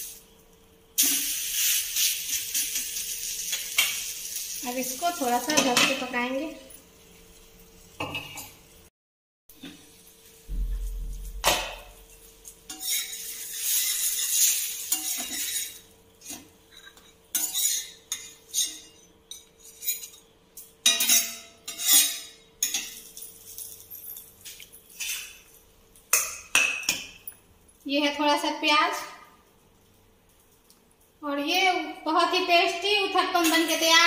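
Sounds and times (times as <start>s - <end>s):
metal spatula scraping griddle: 12.0s - 20.3s, 20.9s - 23.2s, 24.9s - 25.5s.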